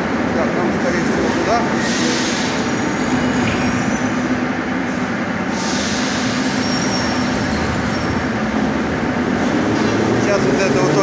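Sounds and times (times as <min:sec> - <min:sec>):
metro trains rumbling: 0:00.0 - 0:11.0.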